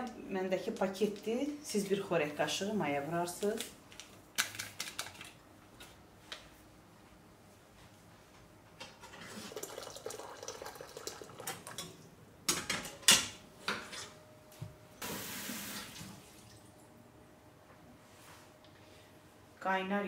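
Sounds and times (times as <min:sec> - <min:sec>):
tap water running into pot: 0:09.2 - 0:11.9
water splashing into saucepan: 0:09.3 - 0:11.8.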